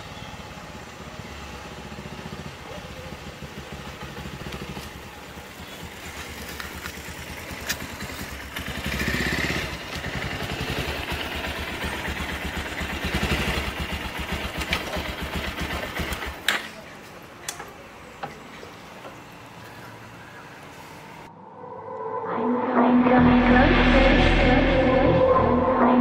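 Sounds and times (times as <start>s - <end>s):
motorcycle engine approaching: 0.0s - 17.3s.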